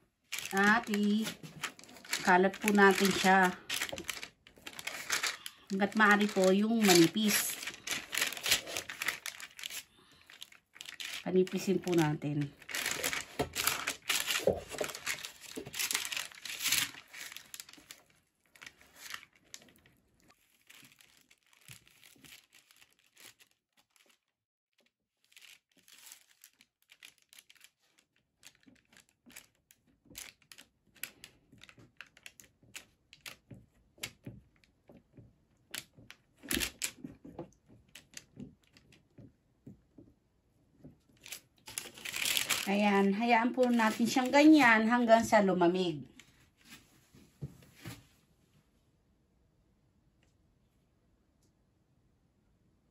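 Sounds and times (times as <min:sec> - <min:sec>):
baking paper crinkling: 0:00.2 - 0:24.3, 0:25.2 - 0:35.0, 0:35.6 - 0:39.0, 0:40.8 - 0:45.0.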